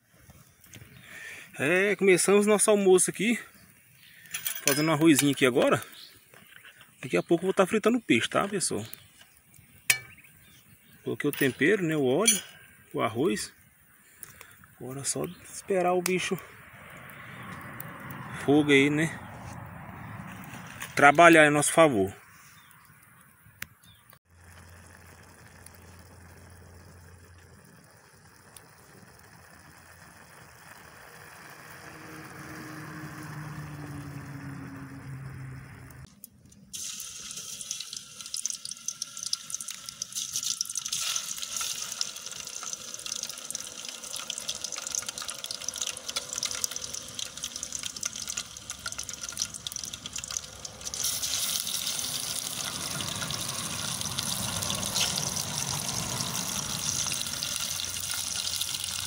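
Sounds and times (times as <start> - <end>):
fish sizzling in hot oil: 8.2 - 15.2, 24.2 - 34.3, 36.7 - 59.0.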